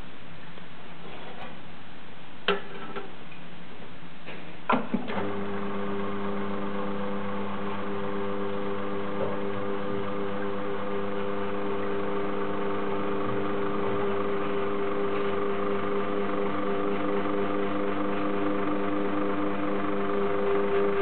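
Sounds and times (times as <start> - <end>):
espresso machine pump humming: 5.1 - 21.0.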